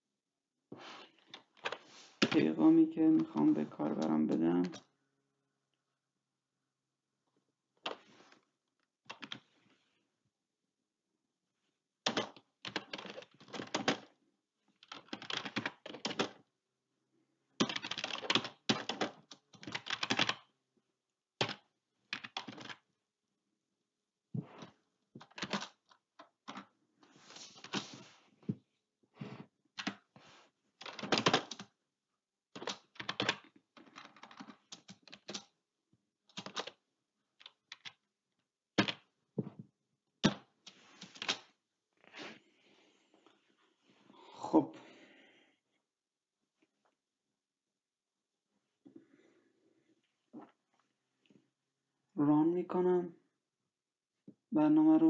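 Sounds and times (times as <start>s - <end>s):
keyboard typing: 9.1s - 9.5s, 12.0s - 14.1s, 14.8s - 16.4s, 17.6s - 20.5s, 21.4s - 22.9s, 24.6s - 26.7s, 29.8s - 30.1s, 30.8s - 31.8s, 32.6s - 35.6s, 36.3s - 36.8s.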